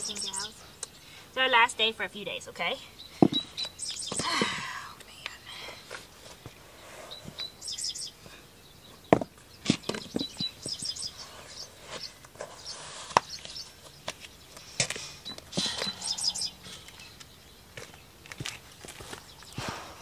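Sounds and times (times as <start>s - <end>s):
small birds chirping: 0.0s - 20.0s
boots thudding on concrete: 3.2s - 4.3s, 9.1s - 10.9s.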